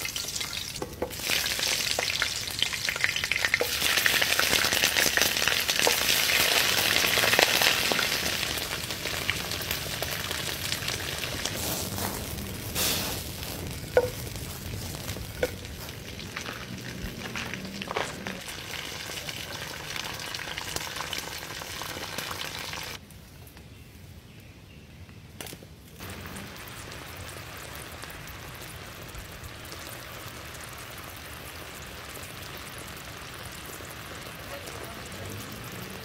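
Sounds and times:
chicken sizzling in a pan: 0.0s - 23.0s, 26.0s - 36.0s
sharp pops: 11.3s - 16.0s.

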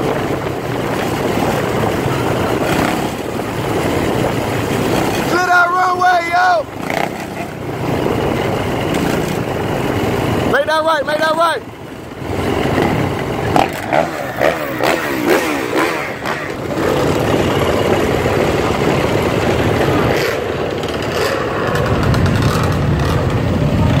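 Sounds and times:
dirt bike and atv engines revving: 0.0s - 24.0s.

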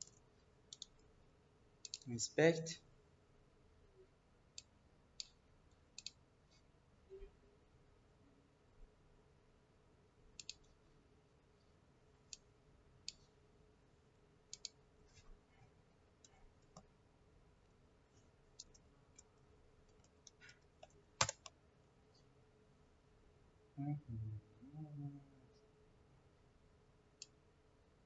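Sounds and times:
computer mouse clicking: 0.0s - 1.0s, 1.8s - 2.1s, 4.6s - 6.2s, 10.4s - 10.7s, 14.5s - 14.8s, 18.6s - 19.3s, 19.9s - 21.6s.

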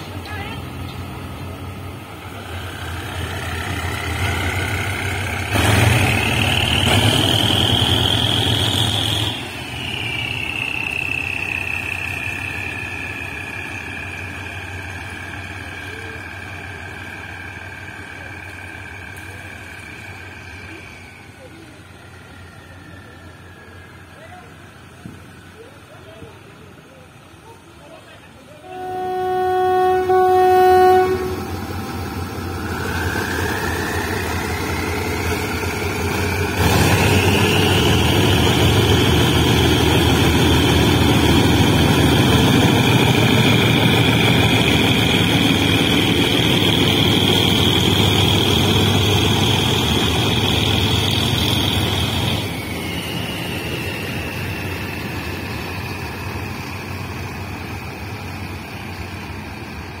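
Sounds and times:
locomotive engine whining: 0.0s - 60.0s
locomotive horn: 28.6s - 31.8s.

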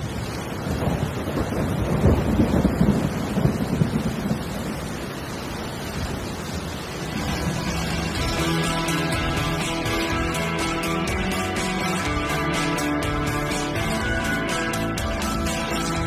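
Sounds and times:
thunder rumbling: 0.0s - 10.0s
heavy rain: 0.0s - 16.0s.

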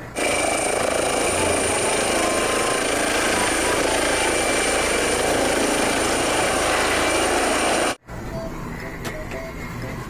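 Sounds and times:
helicopter rotor and engine: 0.2s - 8.0s.

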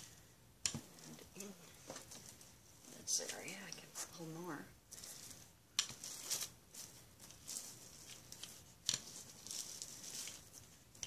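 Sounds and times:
plastic wrap crinkling: 4.8s - 11.0s.

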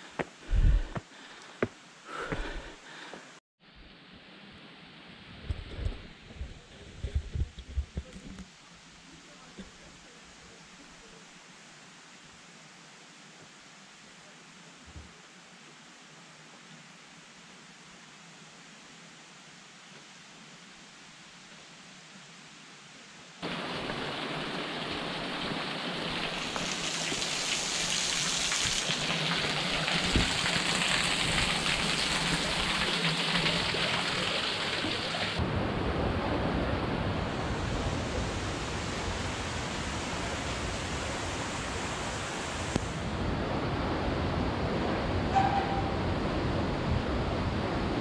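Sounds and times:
water rushing: 23.4s - 48.0s.

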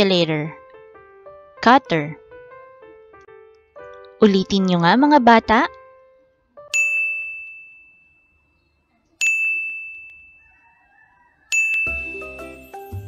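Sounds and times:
bright ringing ding: 6.7s - 8.5s, 9.2s - 10.7s
light tune with bass line: 11.7s - 13.0s.

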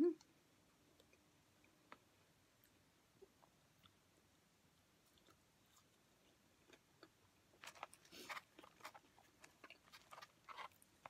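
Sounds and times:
chewing fries: 4.7s - 11.0s.

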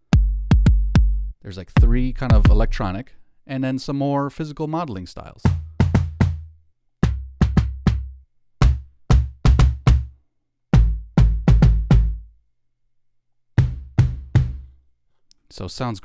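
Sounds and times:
synth kick drum hits: 0.1s - 2.8s, 10.8s - 12.2s, 13.6s - 14.7s.

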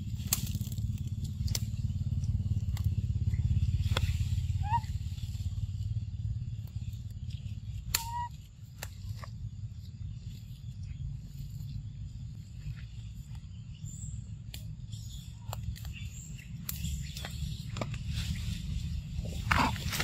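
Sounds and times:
dry twigs and leaves crackling: 0.0s - 20.0s
low motor-like rumble: 0.0s - 20.0s
short squeaky call: 8.0s - 8.3s.

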